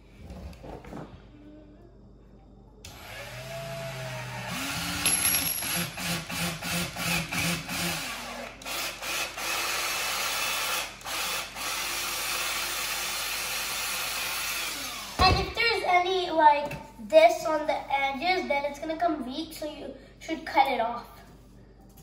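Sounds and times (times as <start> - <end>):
cordless drill boring into wood: 2.9 - 5.1, 5.7 - 15.2.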